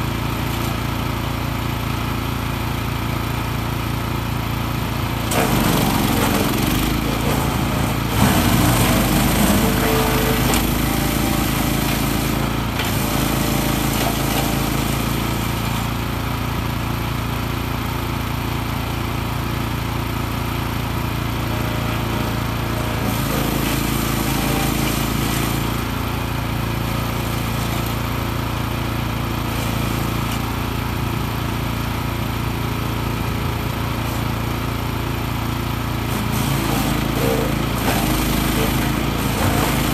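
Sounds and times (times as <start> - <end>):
wood chipper engine running: 0.0 - 39.9.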